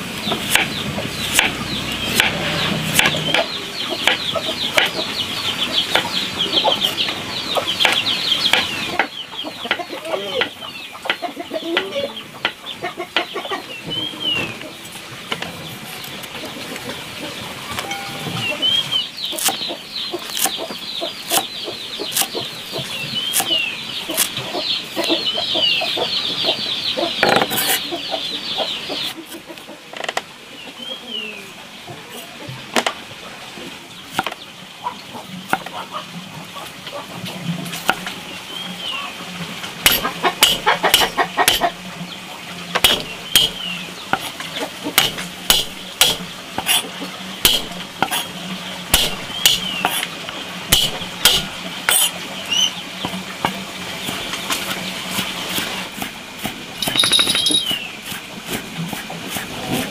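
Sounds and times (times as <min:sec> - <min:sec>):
chicks peeping: 0:00.2 - 0:29.9, 0:34.0 - 0:56.1
cleaver chopping on wooden board: 0:00.3 - 0:05.0, 0:07.8 - 0:09.1, 0:20.3 - 0:20.7, 0:22.1 - 0:24.3, 0:34.2 - 0:34.4, 0:39.8 - 0:41.8, 0:42.8 - 0:44.3, 0:45.0 - 0:46.8, 0:47.4 - 0:48.3, 0:48.9 - 0:50.1, 0:50.7 - 0:52.1.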